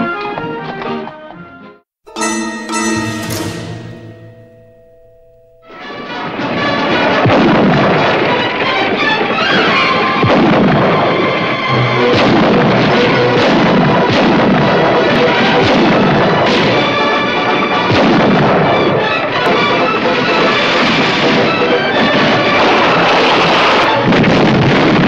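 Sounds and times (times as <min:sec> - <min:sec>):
orchestral western film score: 0:02.1 - 0:04.6
sharp percussion strikes: 0:02.1 - 0:06.0.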